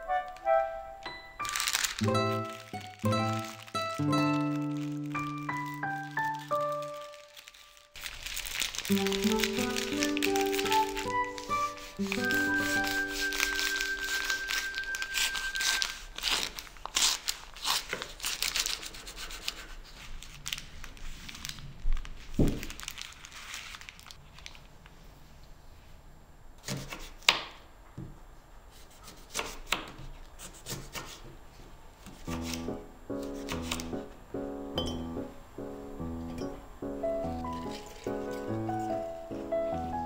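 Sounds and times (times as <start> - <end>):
wrapping paper crinkling: 1.3 - 24.9, 32.2 - 34.1, 37.3 - 40.0.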